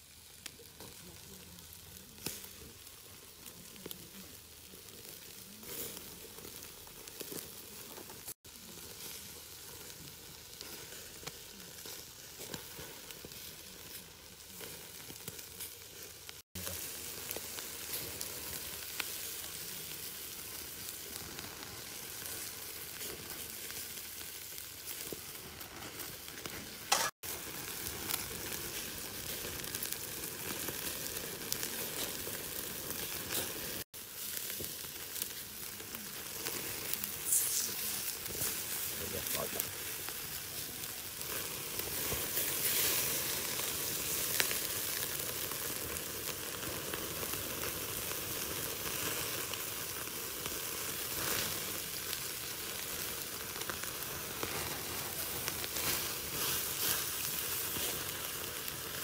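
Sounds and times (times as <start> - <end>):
meat sizzling on a grill: 0.0 - 59.0
wood fire crackling: 0.0 - 59.0
sharp crack: 26.4 - 27.4.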